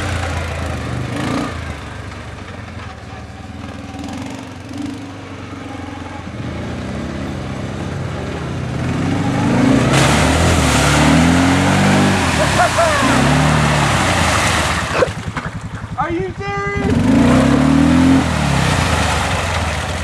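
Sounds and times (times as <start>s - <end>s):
quad engine revving: 0.0s - 1.9s, 3.9s - 20.0s
mud spraying and wheelspin: 7.4s - 16.1s, 16.8s - 20.0s.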